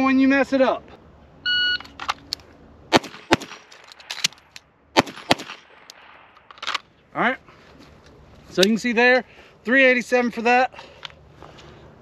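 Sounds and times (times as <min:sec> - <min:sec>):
pistol shots: 0:02.9 - 0:04.3, 0:05.0 - 0:06.4.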